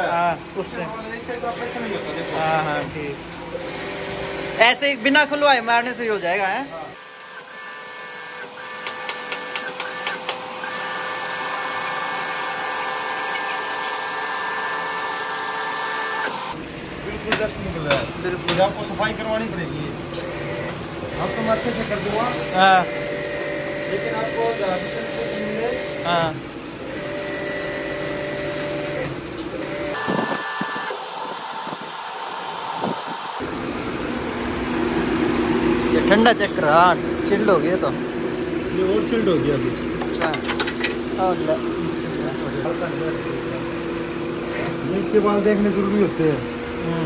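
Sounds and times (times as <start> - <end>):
machinery hum and whine: 0.0 - 47.0
sharp clicks: 8.8 - 10.8.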